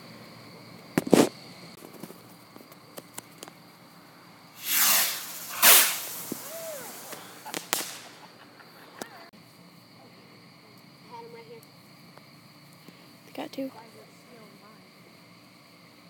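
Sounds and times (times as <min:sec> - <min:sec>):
firework cracks: 0:01.0 - 0:02.2, 0:04.6 - 0:08.4
firework launch whoosh: 0:04.6 - 0:08.3
firework bangs: 0:04.6 - 0:08.4.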